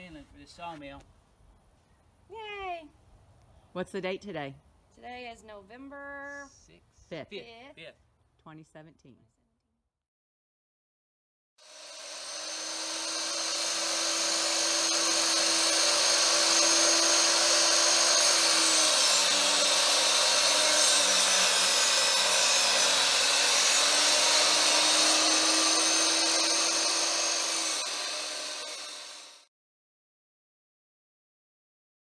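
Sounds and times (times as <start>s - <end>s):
miter saw cutting wood: 11.6s - 29.5s.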